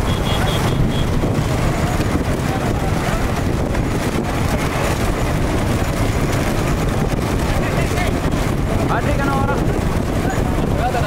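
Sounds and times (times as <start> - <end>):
motor vehicles running: 0.0 - 11.0
wind rumble on microphone: 0.0 - 11.0.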